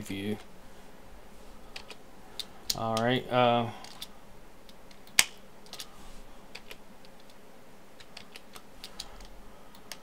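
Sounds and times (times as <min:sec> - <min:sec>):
keyboard keys clicking: 0:08.0 - 0:10.0.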